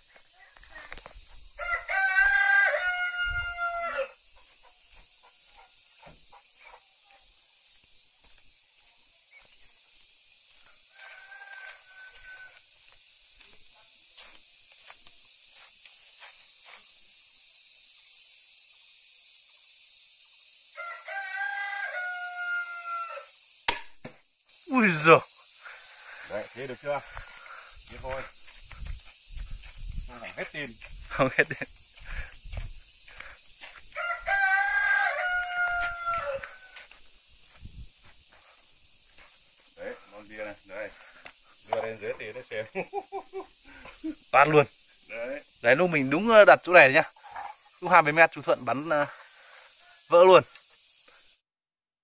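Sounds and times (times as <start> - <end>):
insects buzzing: 0.0 - 51.5
rooster crowing: 1.5 - 4.2, 10.8 - 12.8, 20.7 - 23.4, 33.9 - 37.0
crossbow snap: 23.6 - 24.2.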